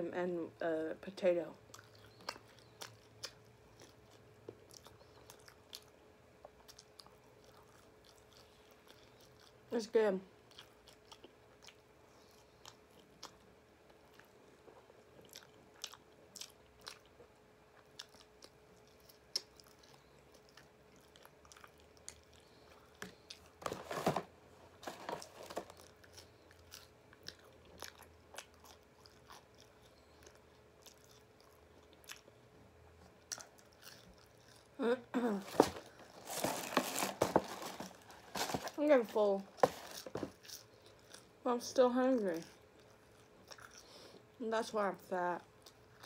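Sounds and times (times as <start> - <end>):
faint steady hum: 0.0 - 46.0
chewing and biting food: 1.6 - 9.7, 10.3 - 23.8, 24.8 - 34.8, 39.6 - 41.4, 42.3 - 44.3, 45.4 - 46.0
handling noises: 23.6 - 25.8, 35.4 - 40.4.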